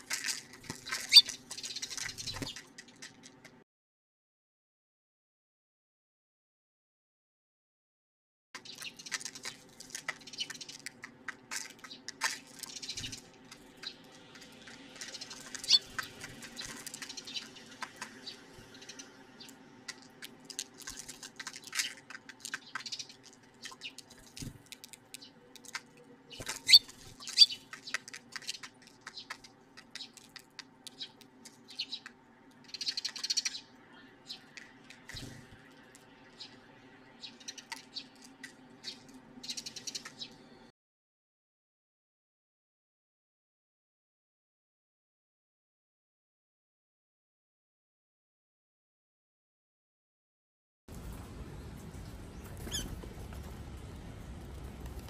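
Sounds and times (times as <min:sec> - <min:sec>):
sparrows chirping: 0:00.0 - 0:03.3, 0:08.6 - 0:40.7, 0:50.9 - 0:55.0.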